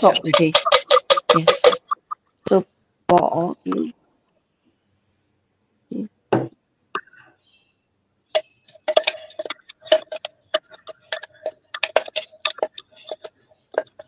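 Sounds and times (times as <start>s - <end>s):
metal jug knocking on wok: 0.0s - 2.0s.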